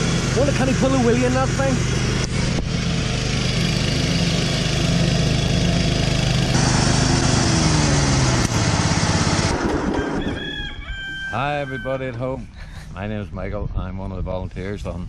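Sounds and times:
lawn mower engine running: 0.0s - 10.4s.

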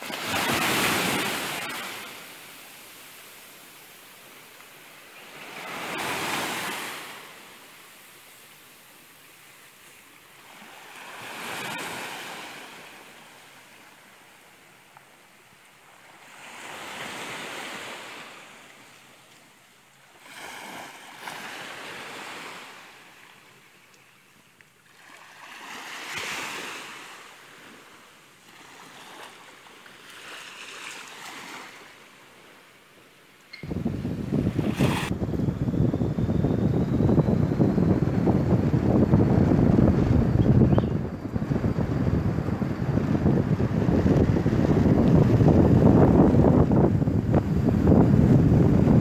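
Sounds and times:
small waves washing on beach: 0.0s - 35.7s.

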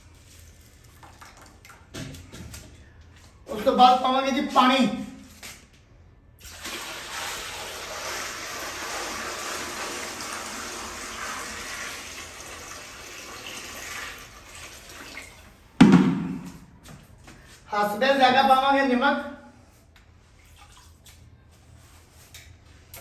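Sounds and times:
water pouring into a pot: 6.4s - 15.6s
loud knock: 15.8s - 16.6s.

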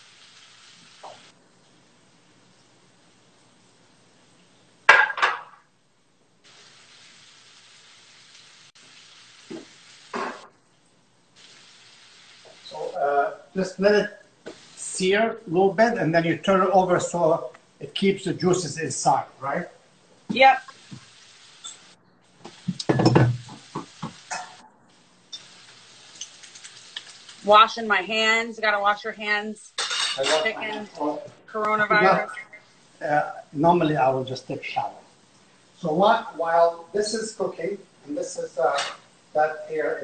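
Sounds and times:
chicken sizzling in a frying pan: 0.0s - 5.4s, 6.4s - 16.7s, 20.2s - 28.5s
pots and pans clinking: 4.9s - 5.6s, 22.7s - 24.6s, 29.8s - 30.6s, 38.7s - 39.1s.

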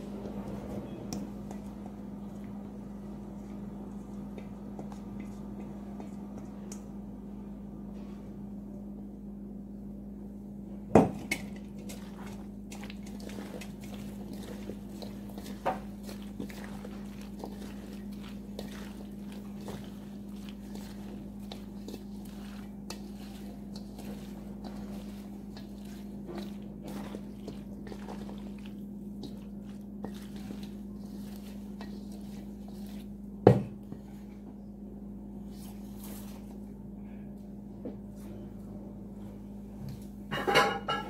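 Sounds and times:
steady low hum: 0.0s - 41.0s
spatula squelching in salad: 11.7s - 33.3s.

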